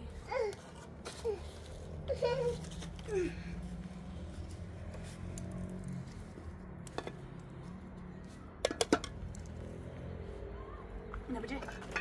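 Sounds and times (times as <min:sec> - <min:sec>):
dishes and utensils clinking: 0:11.5 - 0:12.0.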